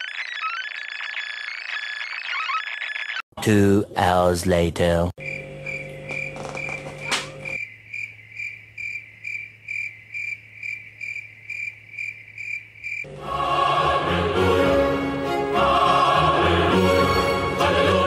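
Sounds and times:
crickets chirping: 5.2s - 13.1s
choral opera-like music: 13.1s - 18.0s.

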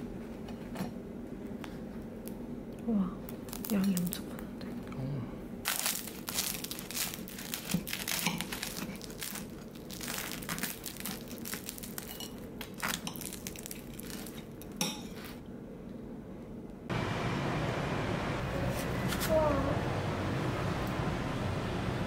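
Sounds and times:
bread crackling and crunching: 3.3s - 4.5s, 5.6s - 15.4s.

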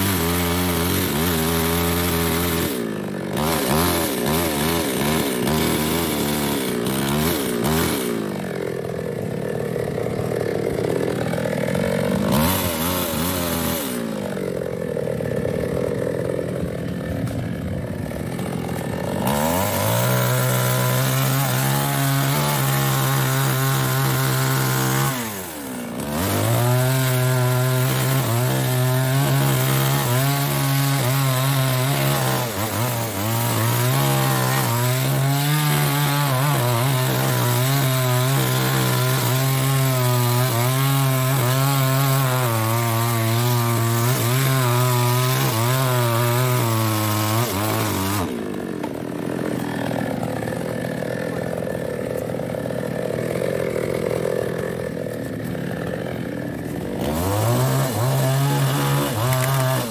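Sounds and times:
chainsaw cutting log: 0.0s - 59.9s.

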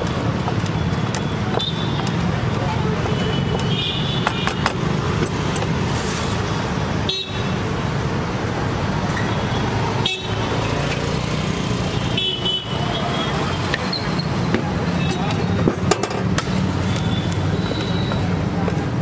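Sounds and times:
engines rumbling: 0.0s - 19.0s
car horns tooting: 12.1s - 14.3s.

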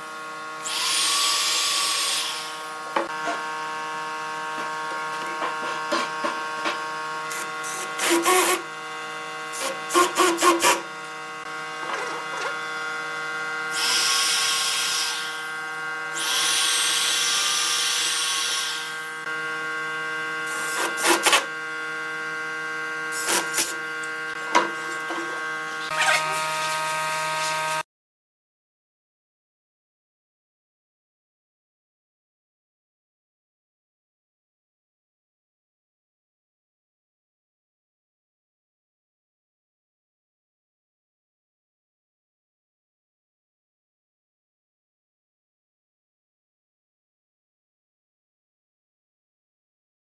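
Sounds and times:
cordless drill into wood: 0.6s - 3.0s, 7.3s - 8.7s, 9.5s - 10.9s, 13.7s - 19.0s, 20.5s - 21.5s, 23.1s - 23.8s.

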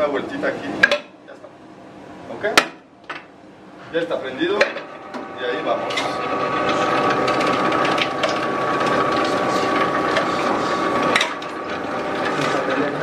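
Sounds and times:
food processor motor whining: 4.9s - 13.0s.

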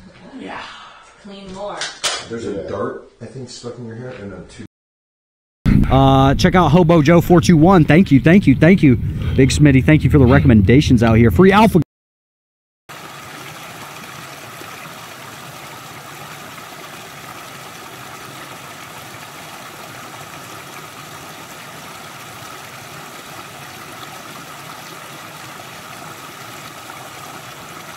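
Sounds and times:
creek water trickling over stones: 12.9s - 27.9s.

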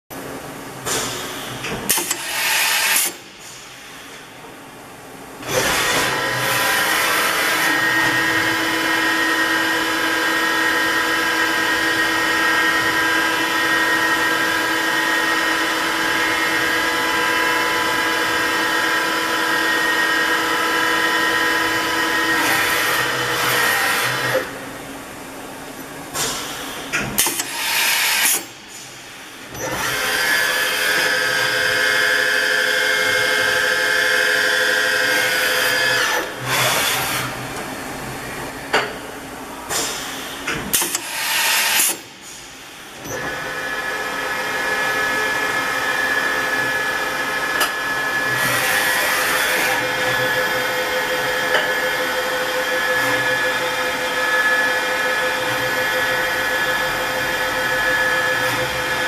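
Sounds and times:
machine whine: 42.9s - 59.0s.

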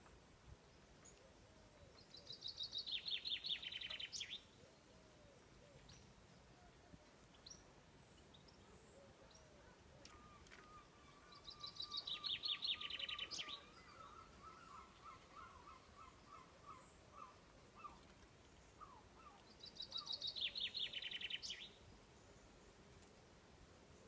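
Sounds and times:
songbird singing: 0.0s - 24.0s.

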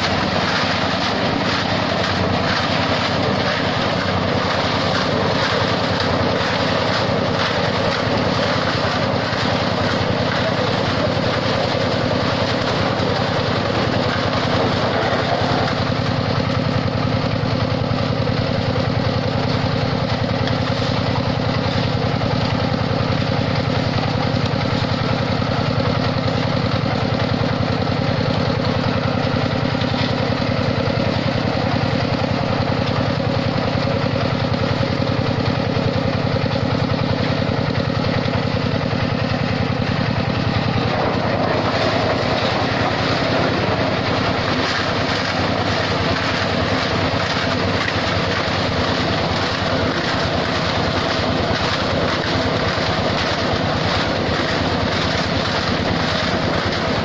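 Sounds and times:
mixer drum discharging concrete: 0.0s - 57.0s
truck engine running: 0.0s - 57.0s.

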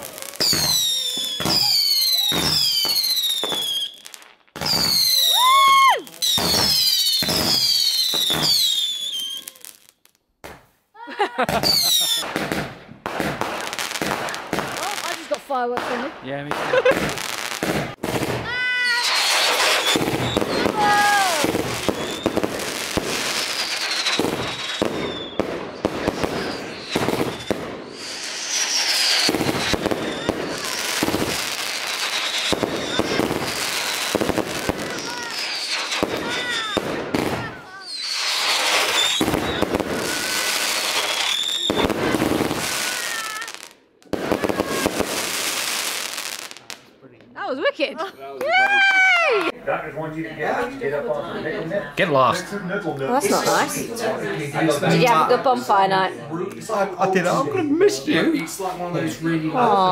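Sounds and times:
fireworks whistling and banging: 0.0s - 10.7s, 11.4s - 46.9s, 53.1s - 55.8s
firework whistle falling in pitch: 18.9s - 22.4s, 37.9s - 41.9s.

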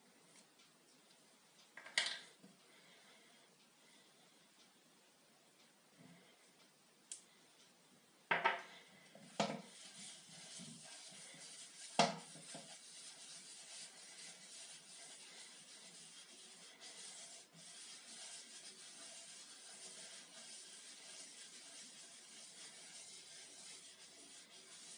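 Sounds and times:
cloth rubbing on wood: 9.3s - 24.9s.

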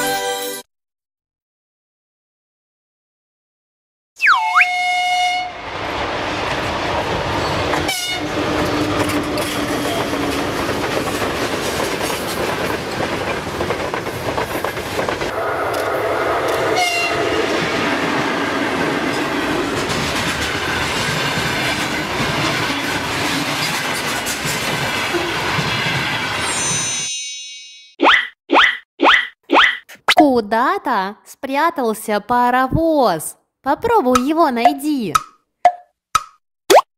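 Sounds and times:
locomotive horn: 4.4s - 5.7s, 7.8s - 8.5s, 15.3s - 17.6s
train wheels clickety-clack: 6.6s - 16.7s, 18.8s - 26.2s.

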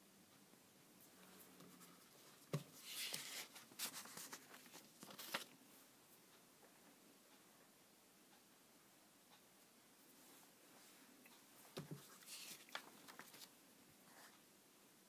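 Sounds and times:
paper rustling and crinkling: 1.6s - 5.6s, 11.8s - 13.6s.

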